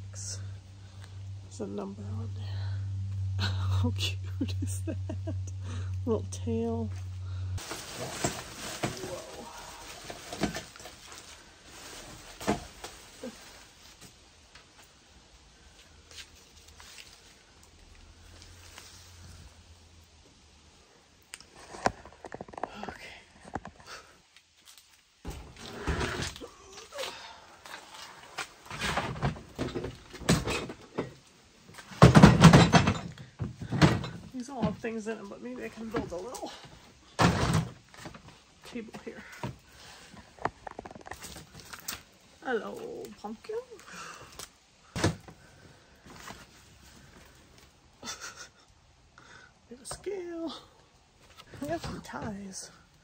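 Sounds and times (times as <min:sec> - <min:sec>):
rustling: 0:06.8 - 0:48.3
items knocking down: 0:07.6 - 0:11.0, 0:31.8 - 0:34.8, 0:37.2 - 0:38.2
objects knocking and scraping: 0:07.6 - 0:13.2, 0:27.7 - 0:34.9, 0:37.2 - 0:42.0
objects clattering: 0:07.6 - 0:13.5, 0:27.7 - 0:34.9, 0:35.9 - 0:38.3.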